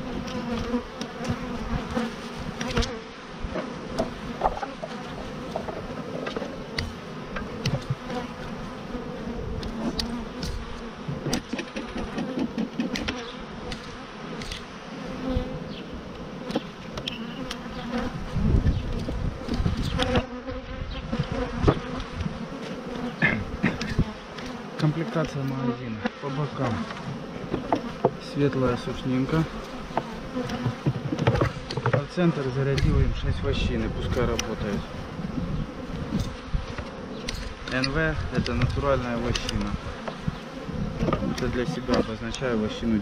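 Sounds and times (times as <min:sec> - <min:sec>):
bees buzzing: 0:00.0 - 0:43.0
wooden hive frames knocking: 0:00.2 - 0:08.4, 0:09.5 - 0:14.0, 0:21.2 - 0:25.6, 0:26.5 - 0:33.2, 0:35.4 - 0:42.6.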